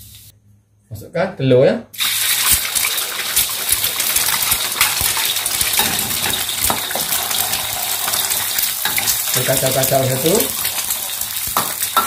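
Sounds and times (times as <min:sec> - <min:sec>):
eggs sizzling in hot oil: 0:02.0 - 0:12.0
metal spatula scraping a wok: 0:05.8 - 0:09.3.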